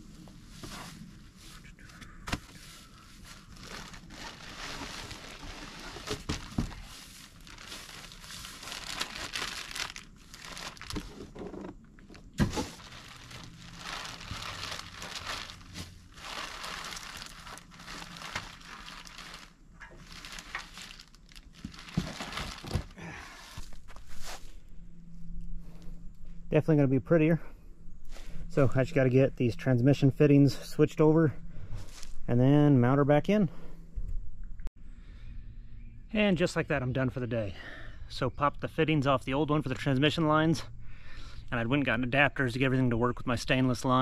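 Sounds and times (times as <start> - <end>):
plastic packaging crinkling and tearing: 3.2 - 11.3, 12.4 - 23.0.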